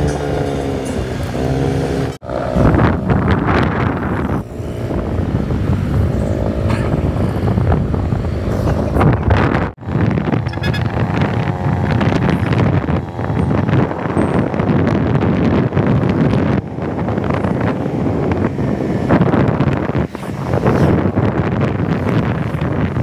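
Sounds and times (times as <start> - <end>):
vehicle engine and road noise: 0.0 - 23.0
wind buffeting microphone: 0.0 - 23.0.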